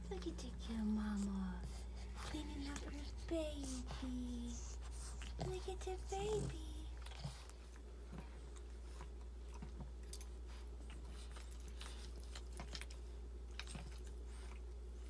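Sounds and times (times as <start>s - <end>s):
dog chewing and licking: 4.9s - 15.0s.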